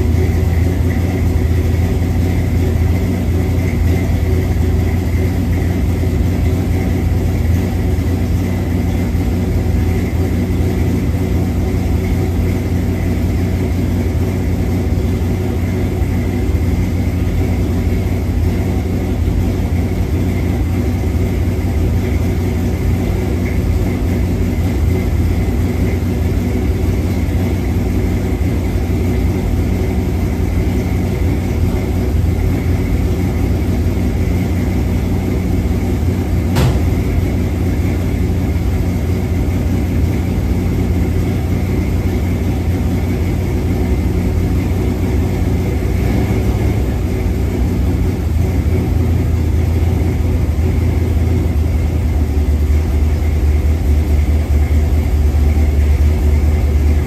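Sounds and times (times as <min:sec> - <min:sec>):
pickup truck engine idling: 0:00.0 - 0:57.0
sharp click: 0:36.5 - 0:37.1.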